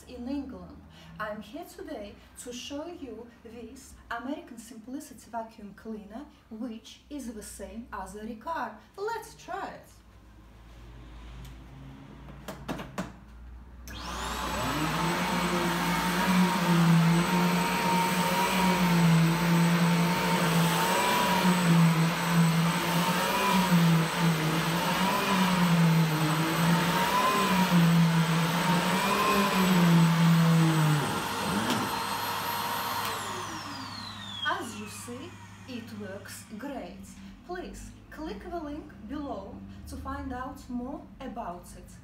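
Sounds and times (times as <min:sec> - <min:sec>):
upright vacuum cleaner whine: 0:13.8 - 0:37.0.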